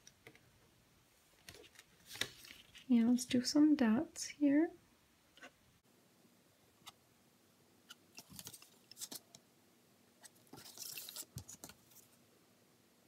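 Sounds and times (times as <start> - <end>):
soft plastic scrapes: 10.2 - 12.2.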